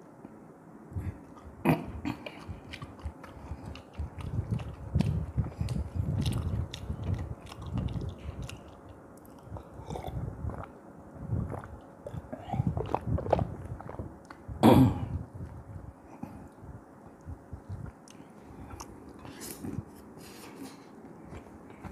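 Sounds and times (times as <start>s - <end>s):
chewing and lip smacks: 1.0s - 10.8s, 11.4s - 14.5s, 16.3s - 19.9s.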